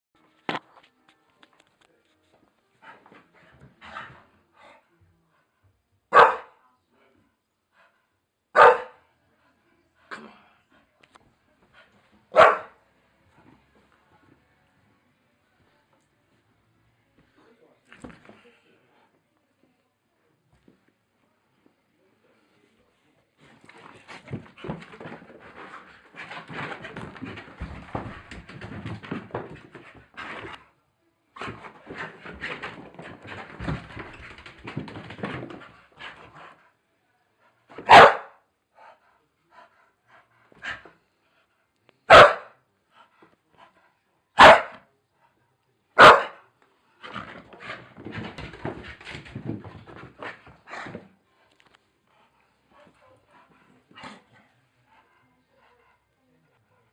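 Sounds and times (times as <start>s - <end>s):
dog barking: 6.1s - 6.6s, 8.6s - 9.0s, 12.3s - 12.8s, 37.8s - 38.4s, 42.1s - 42.6s, 44.4s - 44.8s, 46.0s - 46.4s
scuffles and knocks: 23.5s - 30.6s, 31.4s - 36.4s.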